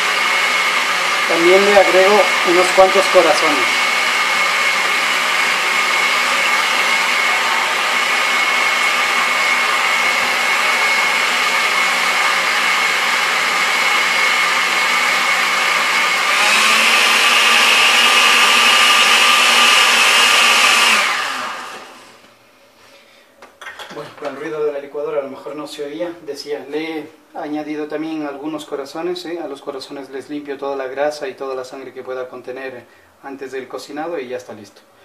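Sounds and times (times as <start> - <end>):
blender running: 0.0 - 22.3.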